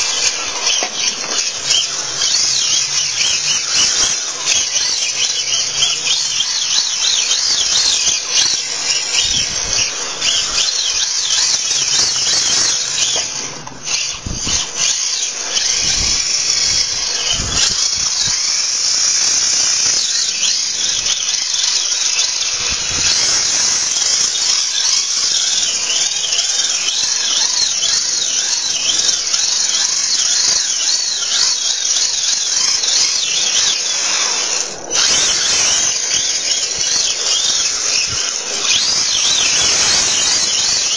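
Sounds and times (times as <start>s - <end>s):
toy car motor whining: 0.0s - 40.9s.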